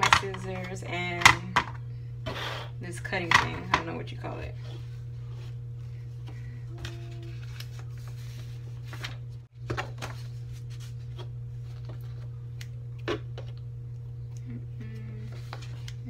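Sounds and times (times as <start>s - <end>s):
steady low hum: 0.0s - 16.0s
paper sheets rustling: 6.3s - 12.3s.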